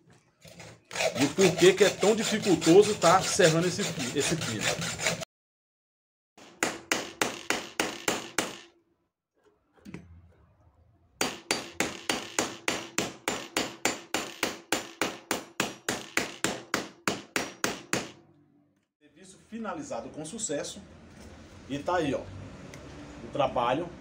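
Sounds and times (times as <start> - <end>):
hammer striking metal pin: 6.4 - 8.7, 11.2 - 18.2.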